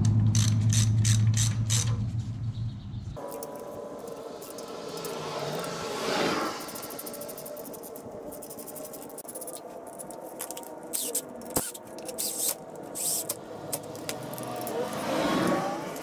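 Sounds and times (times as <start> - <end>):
hand ratchet clicking and scraping: 0.0 - 2.0, 3.2 - 16.0
sharp metallic click: 0.0 - 2.0.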